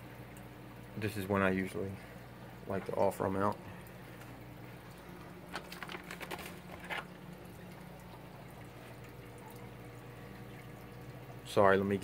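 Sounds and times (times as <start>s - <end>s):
faint moving water: 0.0s - 12.0s
steady electrical hum: 0.0s - 12.0s
light clicks and rustles: 5.5s - 7.1s.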